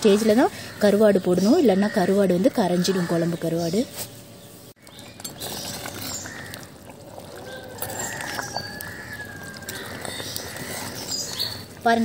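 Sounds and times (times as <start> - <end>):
ladle stirring curry: 4.8 - 12.0
liquid sloshing and trickling: 4.8 - 12.0.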